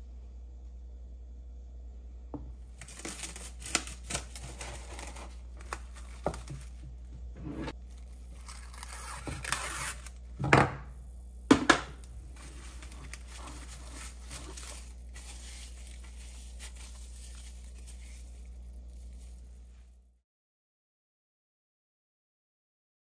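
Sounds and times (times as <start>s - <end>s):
low hum: 0.0s - 20.2s
cling film crinkling and rustling: 2.7s - 7.1s, 7.7s - 10.3s, 12.4s - 19.9s.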